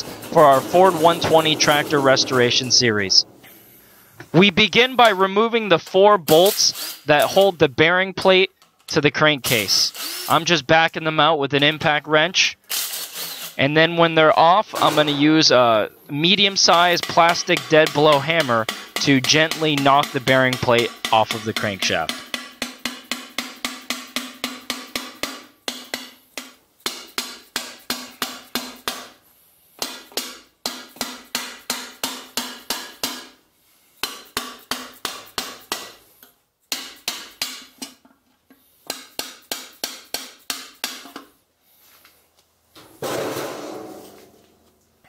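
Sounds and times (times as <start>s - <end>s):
metal plate scraping: 0.0s - 3.8s
hammer tapping metal plate: 16.5s - 29.2s, 29.8s - 33.4s, 34.0s - 36.0s, 36.7s - 38.0s, 38.9s - 41.3s.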